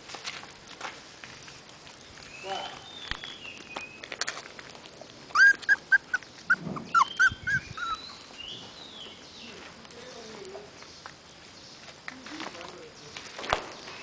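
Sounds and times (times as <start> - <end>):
puppy yipping: 5.3 - 8.2.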